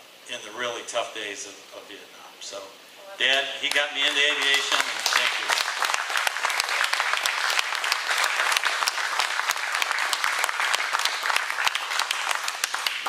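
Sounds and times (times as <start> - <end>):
audience applauding: 3.6 - 13.0.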